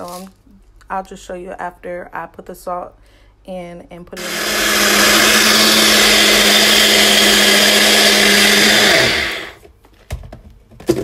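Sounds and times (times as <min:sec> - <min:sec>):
blender running: 0:04.2 - 0:09.6.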